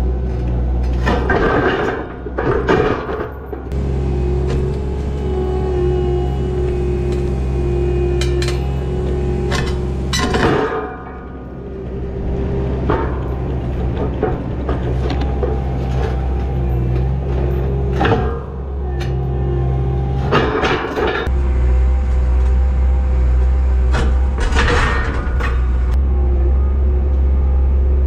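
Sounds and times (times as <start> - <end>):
skid steer engine running: 0.0 - 28.0.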